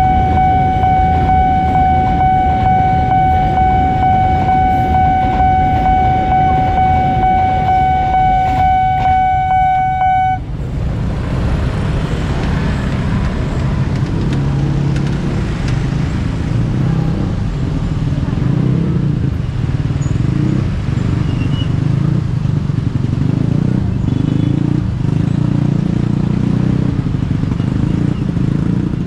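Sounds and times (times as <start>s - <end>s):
level crossing warning tone: 0.0s - 10.5s
car and motorcycle engines: 0.0s - 29.0s
freight train rumble and clatter: 10.4s - 24.2s.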